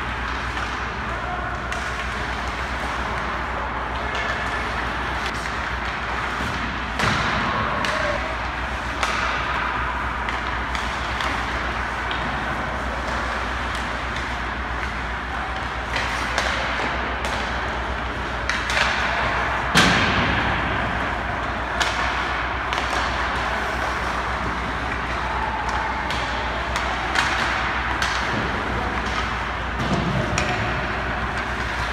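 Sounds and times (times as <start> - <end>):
hockey sticks hitting pucks: 0.0 - 31.9
pucks thudding into goalie: 5.3 - 15.0, 18.4 - 31.9.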